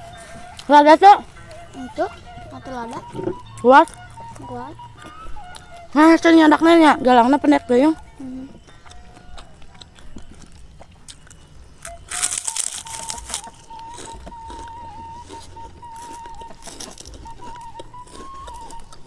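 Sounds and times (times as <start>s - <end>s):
thin wavering tone: 0.0s - 19.0s
crunching bites into crackers: 8.6s - 19.0s.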